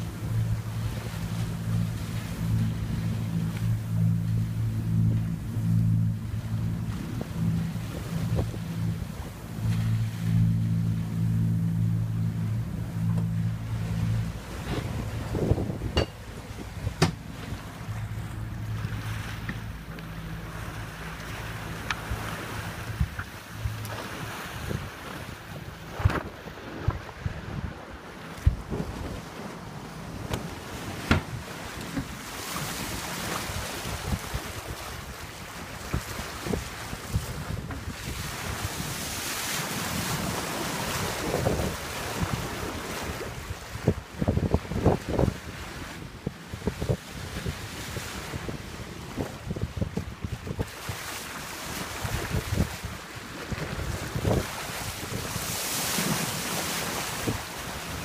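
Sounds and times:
low steady hum: 0.0s - 45.1s
water rushing along hull: 0.0s - 58.0s
wind buffeting microphone: 0.0s - 58.0s.

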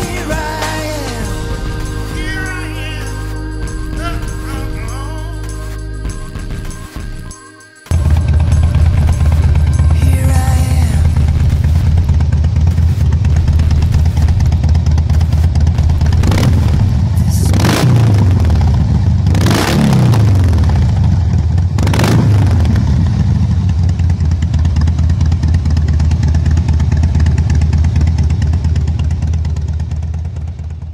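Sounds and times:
motorcycle engines idling: 0.0s - 30.9s
motorcycle engine revs: 7.9s - 30.8s.

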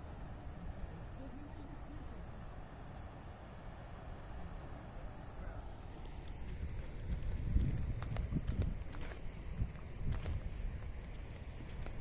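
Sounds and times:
soft outdoor hiss: 0.0s - 12.0s.

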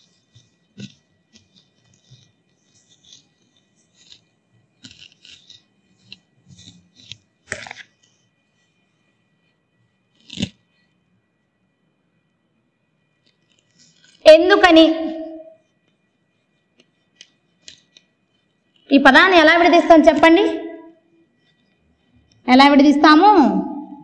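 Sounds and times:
duster rubbing on chalkboard: 0.0s - 7.2s.

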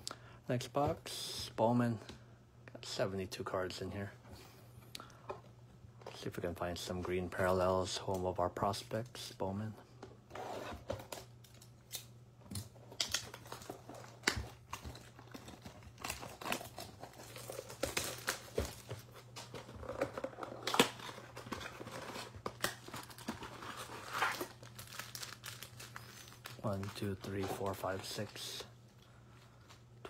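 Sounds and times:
wrapper crinkling and tearing: 12.9s - 28.6s.

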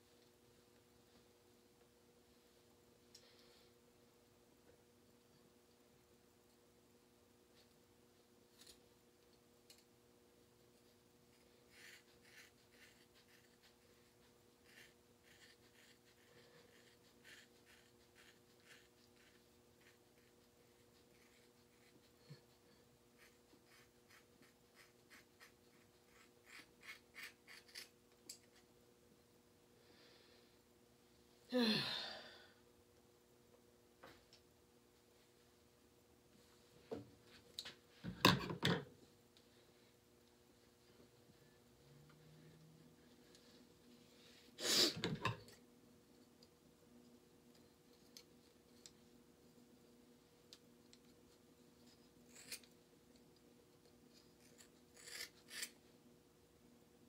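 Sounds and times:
person sighing: 31.5s - 32.6s.

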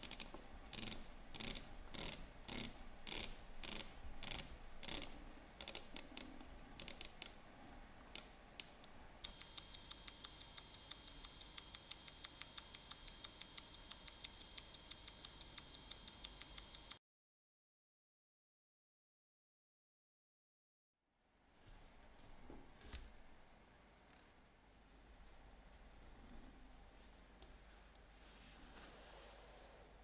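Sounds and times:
sharp clicks in bursts: 0.0s - 7.4s, 8.2s - 17.0s
watch ticking: 0.0s - 7.4s, 8.2s - 17.0s.

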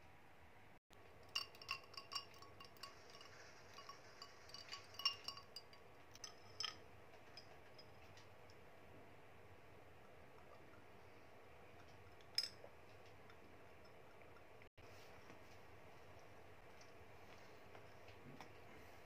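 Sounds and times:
ice cubes clinking in glass: 1.2s - 6.8s.

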